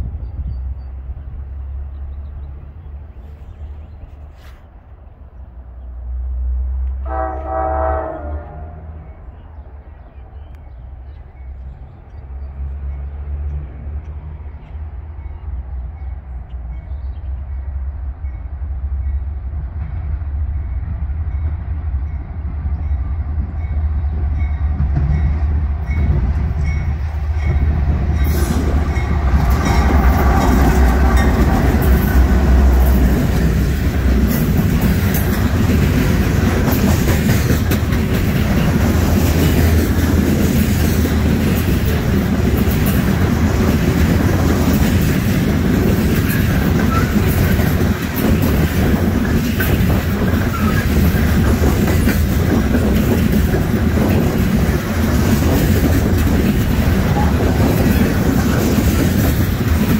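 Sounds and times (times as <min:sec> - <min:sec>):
low rumble of train: 0:00.0 - 0:59.9
locomotive horn blast: 0:07.0 - 0:09.2
train cars clattering over rail joints: 0:24.8 - 0:59.9.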